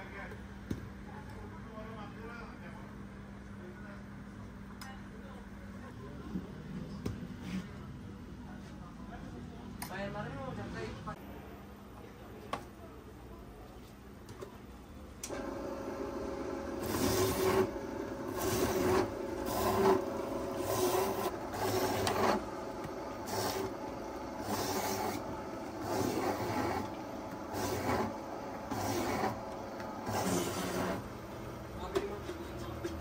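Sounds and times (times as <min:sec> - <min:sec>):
citrus juicer motor running: 0:15.3 - 0:32.2
rasping fruit pressing surge: 0:15.4 - 0:31.0.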